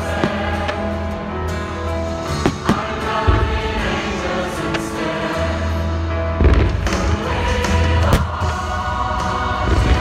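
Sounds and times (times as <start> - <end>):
choral music with held chords: 0.0 - 10.0
fireworks bangs: 6.4 - 7.2.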